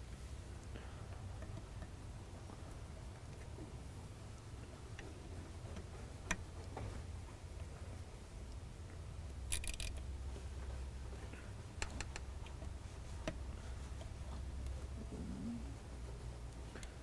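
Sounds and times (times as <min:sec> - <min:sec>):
low steady hum: 0:00.0 - 0:17.0
screwdriver clicking and ticking: 0:09.5 - 0:10.0.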